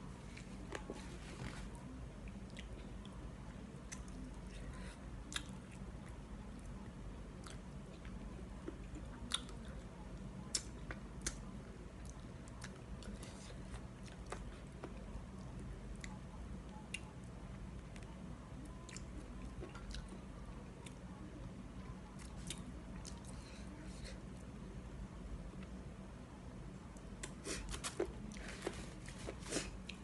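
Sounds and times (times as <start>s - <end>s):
low background hum: 0.0s - 30.0s
chewing and lip smacks: 5.3s - 6.2s.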